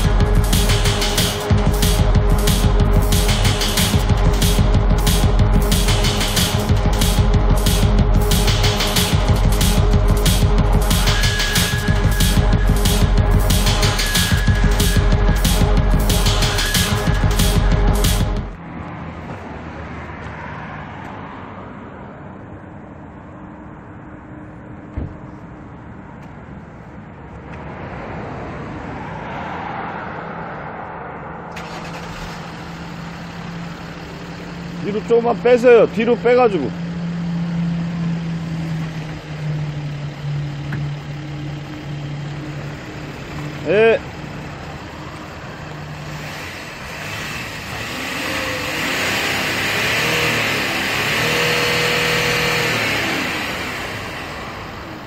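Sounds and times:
car engine exhaust rumble: 0.0s - 19.5s, 31.2s - 55.0s.

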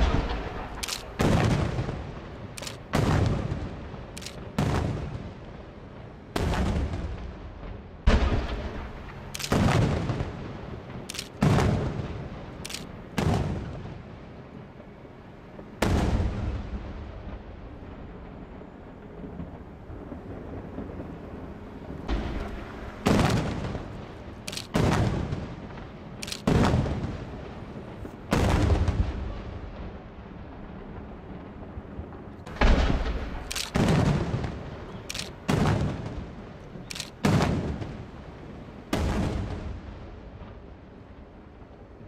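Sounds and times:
firework shells booming: 0.0s - 2.2s, 32.5s - 36.4s.

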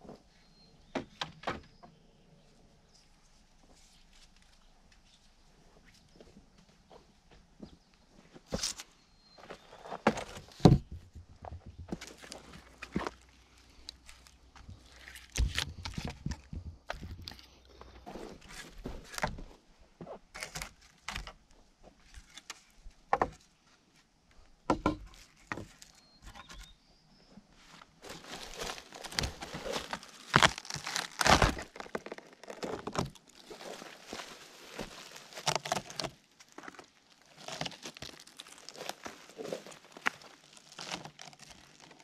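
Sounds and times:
dry vegetation rustling: 8.4s - 19.7s, 27.6s - 42.0s.

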